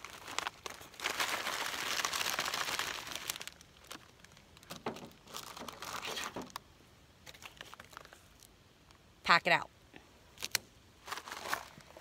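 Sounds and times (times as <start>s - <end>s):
foil packaging crinkling: 0.0s - 6.6s, 7.2s - 8.5s, 10.4s - 12.0s.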